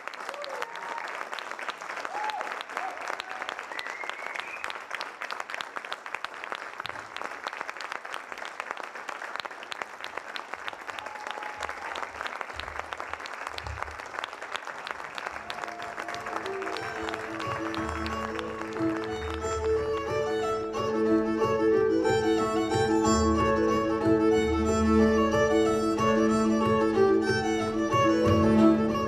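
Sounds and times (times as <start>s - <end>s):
audience applauding: 0.0s - 29.0s
violin and cello held notes: 16.2s - 29.0s.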